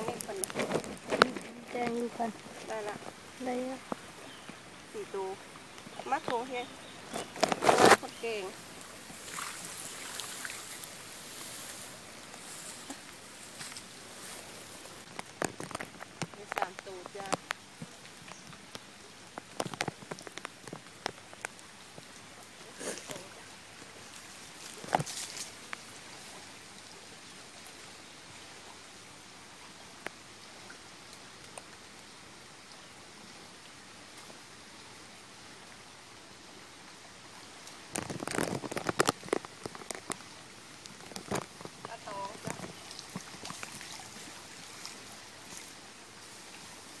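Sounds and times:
light steady hiss: 0:00.0 - 0:47.0
brief rustle: 0:07.1 - 0:08.2
water splashing off net: 0:07.3 - 0:13.0.

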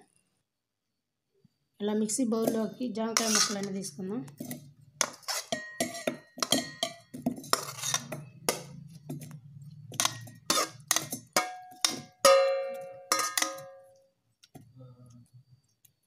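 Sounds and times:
utensil clinking in a steel jar: 0:09.9 - 0:13.7.

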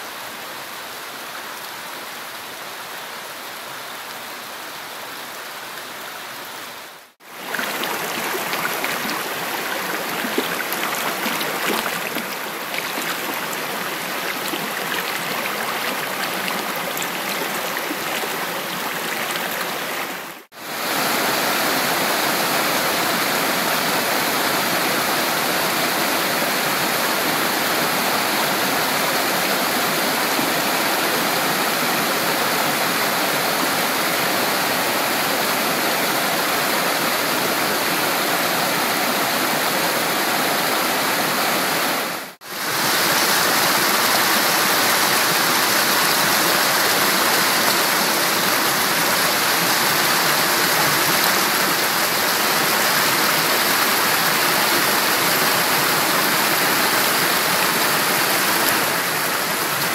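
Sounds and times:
stream splashing over boulders: 0:07.2 - 0:35.4, 0:41.1 - 0:59.9.

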